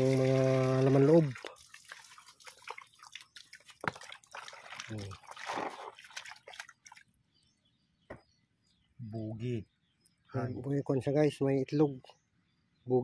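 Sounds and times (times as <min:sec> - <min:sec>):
water splashing in a basin: 0:00.0 - 0:07.2.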